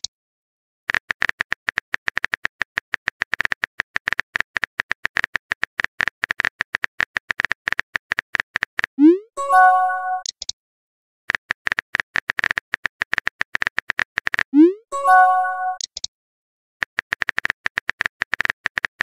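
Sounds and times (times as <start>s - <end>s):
message sent swoop and chime: 9.0s - 10.2s, 14.6s - 15.8s.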